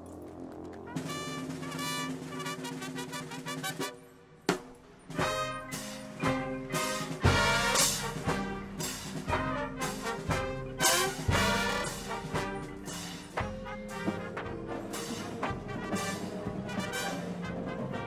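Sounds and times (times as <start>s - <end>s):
drum and bugle corps playing: 0.0s - 18.0s.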